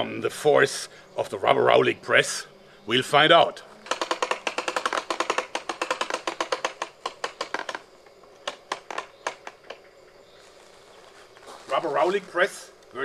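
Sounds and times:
sharp clicks of hand press mechanism: 3.8s - 7.8s.

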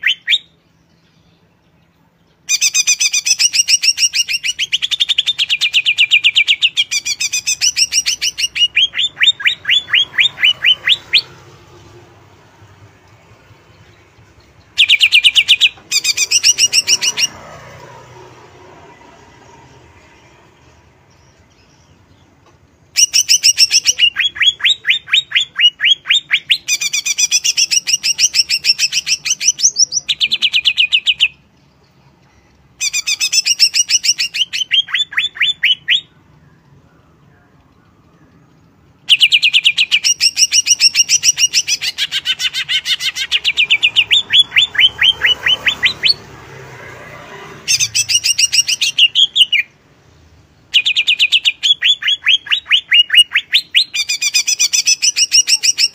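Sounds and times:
bird singing sliding notes: 0.0s - 55.9s.

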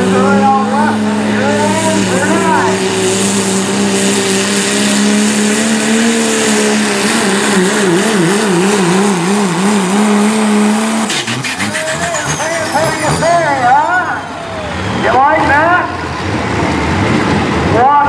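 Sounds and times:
diesel truck engine at full throttle: 0.0s - 18.0s.

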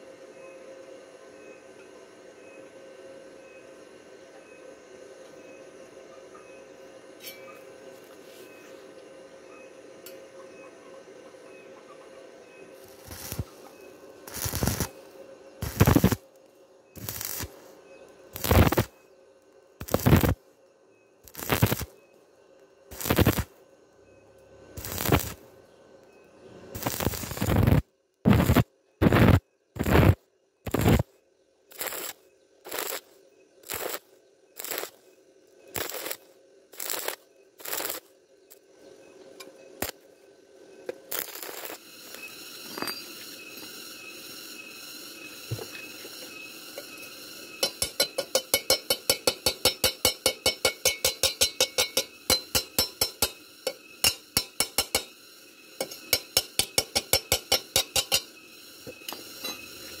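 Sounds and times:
welding arc bursts: 12.8s - 16.4s, 17.0s - 19.0s, 19.8s - 20.4s, 21.2s - 22.0s, 22.9s - 23.6s, 24.8s - 25.5s, 26.7s - 31.1s, 31.7s - 35.1s, 35.7s - 38.1s, 39.8s - 40.0s, 41.0s - 60.0s.

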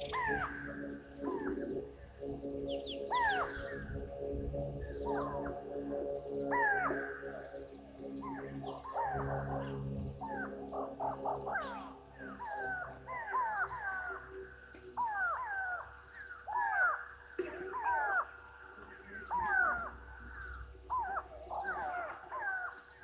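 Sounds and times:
high insect drone: 0.0s - 23.0s.

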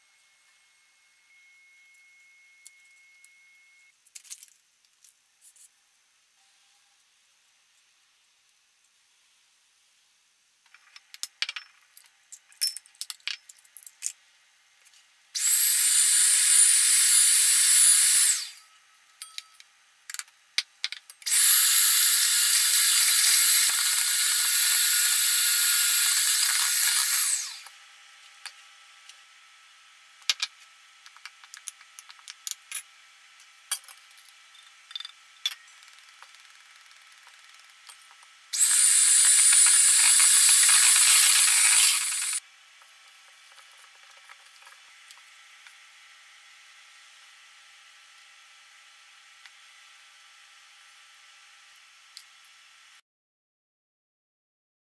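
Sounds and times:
electric hand mixer running: 15.4s - 18.6s, 21.3s - 27.6s, 38.6s - 42.4s.

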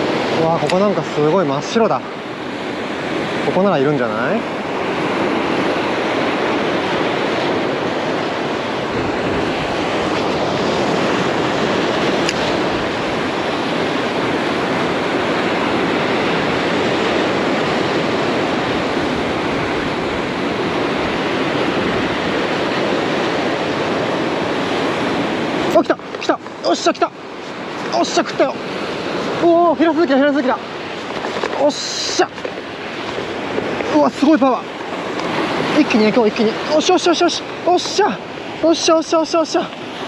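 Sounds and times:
surf breaking on boulders: 8.8s - 40.0s.

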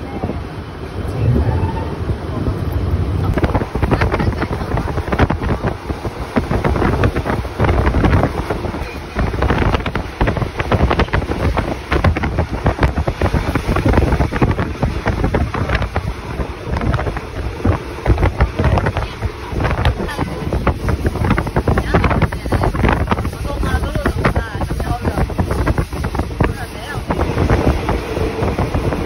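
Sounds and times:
gusty wind buffeting microphone: 0.0s - 29.0s
train running noise: 0.0s - 29.0s.

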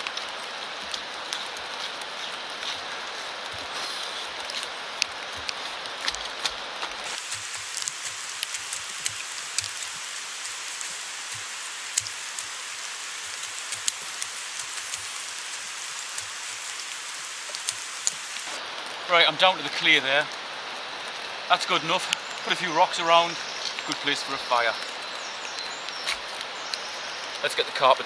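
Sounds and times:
rain hiss: 0.0s - 28.0s
shovel digging soil: 5.4s - 18.6s.

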